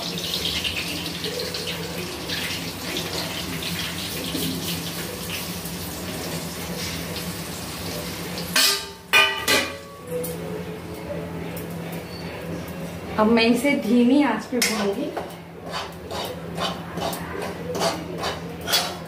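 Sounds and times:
flour sizzling in hot ghee: 0.0 - 8.6
metallic clanks of plate on pan: 8.5 - 9.9, 16.2 - 19.0.

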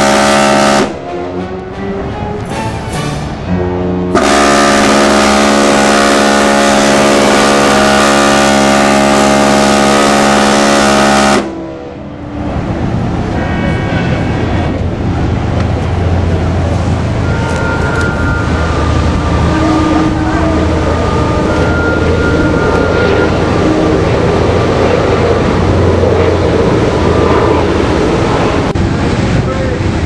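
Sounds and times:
ship's whistle long blast: 0.0 - 1.1, 4.1 - 12.0, 17.0 - 24.7
noisy water wash: 0.0 - 30.0
short horn toots: 4.1 - 11.7.

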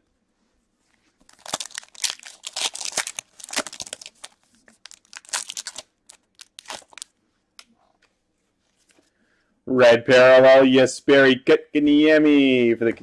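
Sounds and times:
wrapper tearing and crinkling: 1.2 - 7.1.

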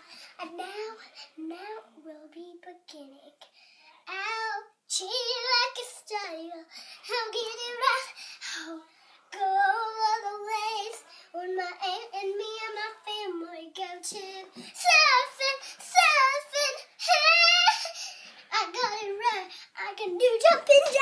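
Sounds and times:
girl singing high notes: 9.3 - 21.0.

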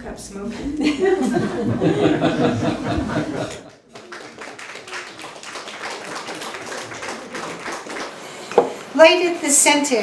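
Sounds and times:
small audience clapping: 2.9 - 9.0.

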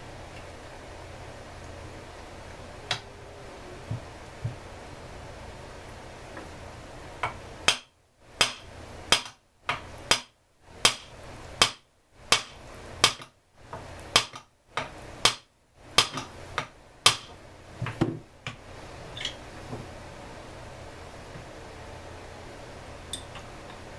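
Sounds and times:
hammer tapping on metal: 7.2 - 13.3, 14.1 - 17.3.

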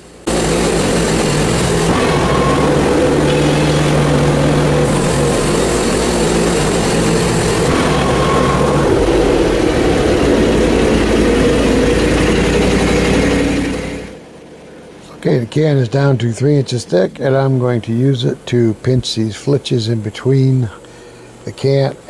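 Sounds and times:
gasoline engine droning: 0.0 - 22.0
band blade sawing wood: 0.3 - 14.1.

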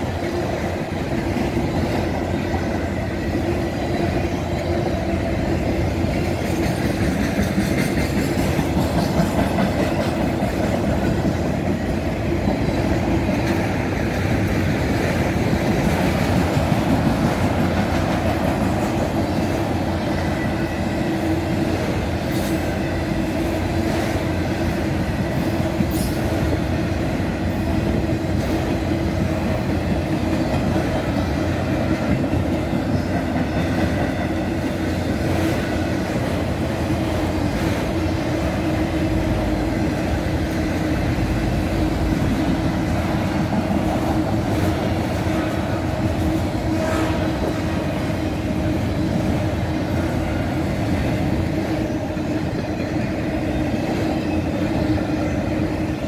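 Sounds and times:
freight train rolling past: 0.0 - 56.0
steel wheels rumbling on rails: 0.0 - 56.0.

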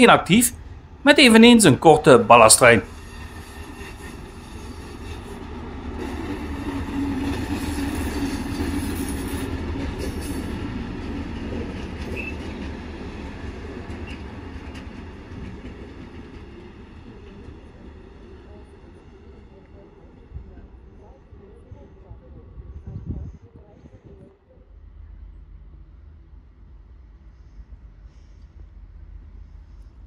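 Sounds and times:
train wheels running: 0.0 - 18.7
diesel locomotive engine: 0.0 - 30.0.

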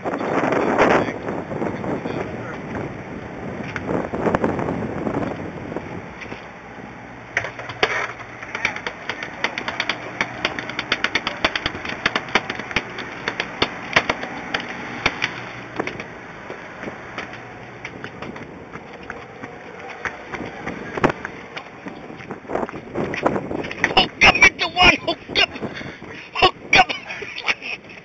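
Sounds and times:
boat engine humming: 0.0 - 28.0
rapid sharp clicks: 7.6 - 15.4.

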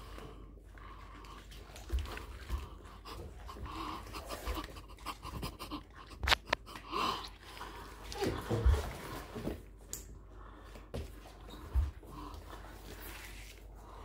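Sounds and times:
person panting: 0.0 - 8.9.

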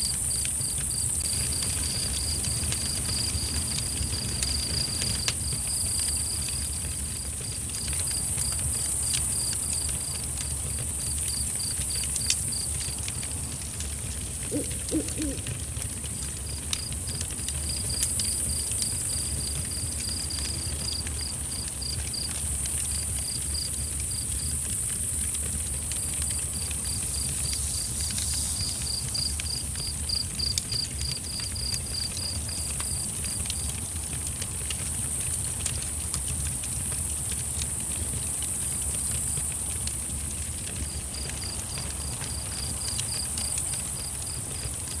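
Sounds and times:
cricket chirping: 7.8 - 13.0, 14.5 - 15.6, 16.8 - 33.6.

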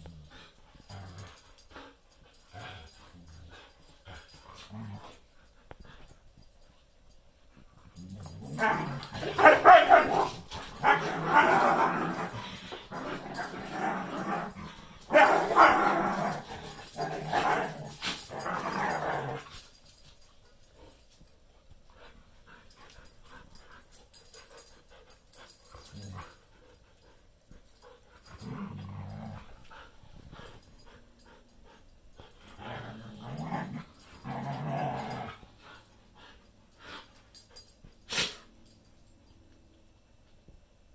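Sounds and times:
dogs growling and snarling: 0.0 - 6.2, 7.9 - 19.7, 25.3 - 26.6, 27.7 - 38.4.

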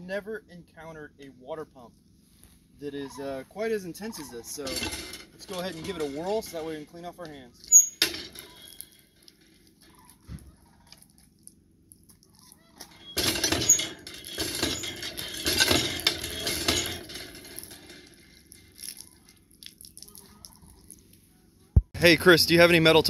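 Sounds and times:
hand water pump handle working: 12.8 - 19.0.

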